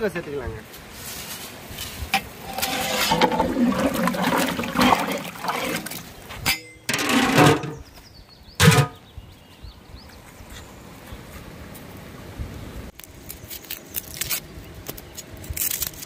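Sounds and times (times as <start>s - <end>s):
liquid bubbling in pot: 2.4s - 6.3s.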